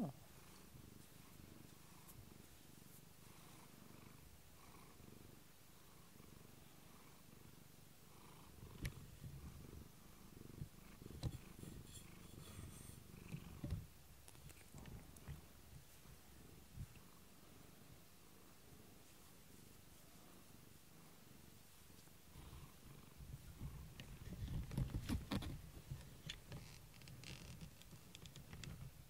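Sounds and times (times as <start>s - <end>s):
cat purring: 0.0s - 29.0s.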